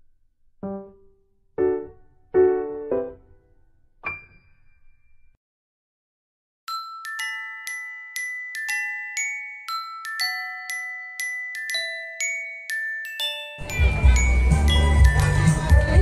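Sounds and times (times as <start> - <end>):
glockenspiel melody: 6.7 - 16.0.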